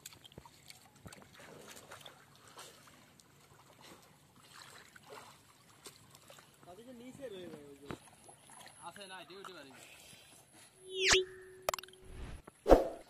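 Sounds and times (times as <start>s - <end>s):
water sloshing from wading: 0.0s - 6.9s, 7.5s - 9.6s.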